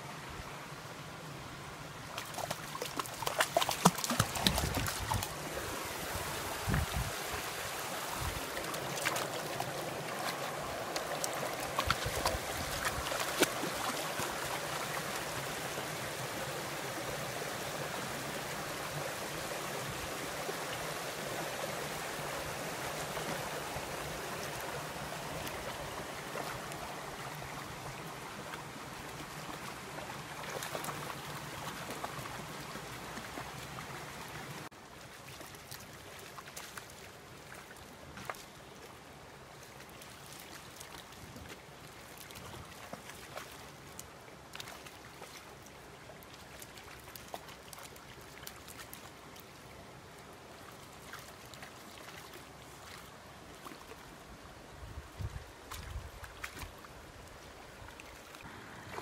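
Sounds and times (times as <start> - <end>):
rocky creek running: 0.6 - 59.0
dogs splashing in water: 2.2 - 5.4, 10.2 - 14.6.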